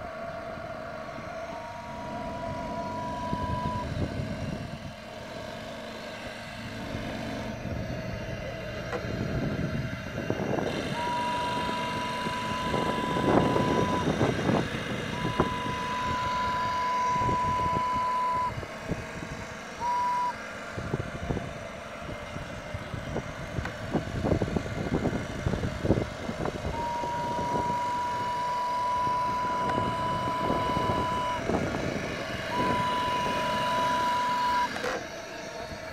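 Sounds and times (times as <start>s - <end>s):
steady rumbling noise: 0.0s - 35.9s
steam whistle blasts: 10.7s - 14.2s.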